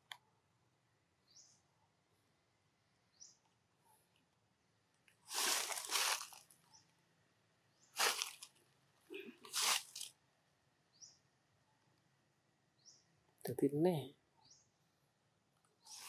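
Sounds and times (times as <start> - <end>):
bird chirp: 1.2 - 2.0, 2.8 - 4.2, 6.6 - 7.0, 7.7 - 8.1, 10.8 - 12.0, 12.7 - 16.0
dry leaves crunching: 5.3 - 6.5, 8.0 - 8.6, 9.4 - 10.1.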